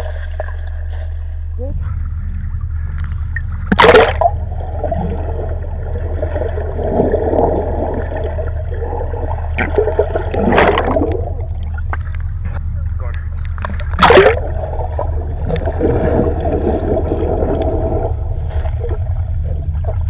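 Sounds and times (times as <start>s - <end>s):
muffled underwater gurgling: 0.0s - 20.0s
sharp water splash: 3.7s - 4.4s, 9.6s - 11.2s, 13.9s - 14.4s
loud rush of bubbles: 3.7s - 11.5s, 13.9s - 20.0s.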